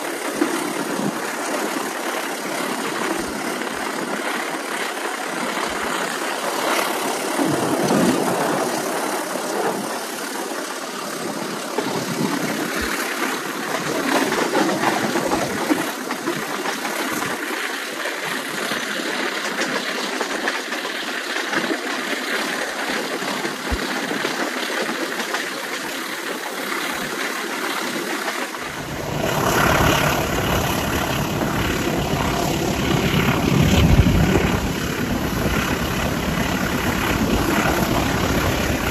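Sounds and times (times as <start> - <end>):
diesel locomotive running: 28.5 - 38.9
coaches rumbling on rails: 28.6 - 38.9.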